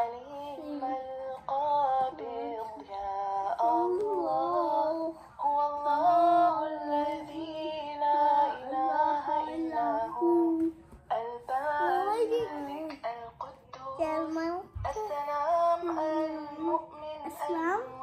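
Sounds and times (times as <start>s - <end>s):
person singing in a high voice: 0.0s - 18.0s.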